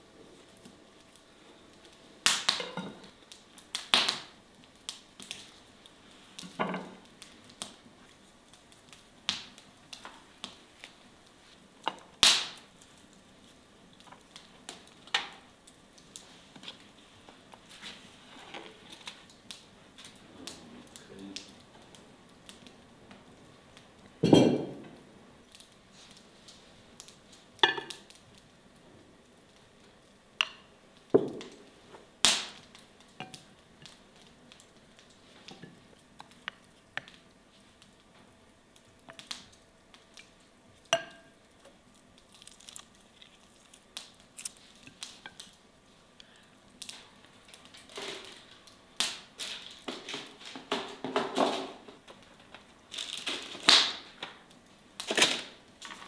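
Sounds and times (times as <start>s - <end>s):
crockery clinking on wooden table: 24.2s - 24.8s.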